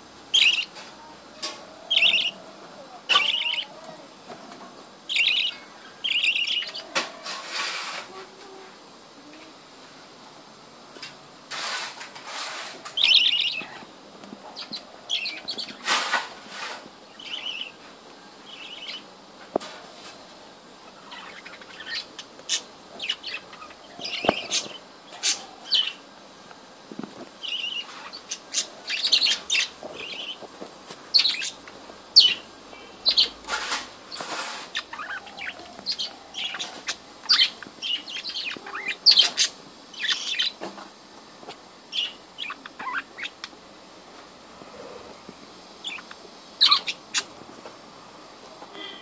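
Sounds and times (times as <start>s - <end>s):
budgerigars chirping: 0.3s - 0.7s, 1.9s - 2.4s, 3.1s - 3.7s, 5.1s - 6.9s, 13.0s - 13.8s, 17.2s - 17.8s, 27.4s - 30.4s, 31.1s - 31.6s, 32.2s - 33.4s, 34.1s - 40.6s, 41.9s - 43.5s, 45.8s - 47.3s.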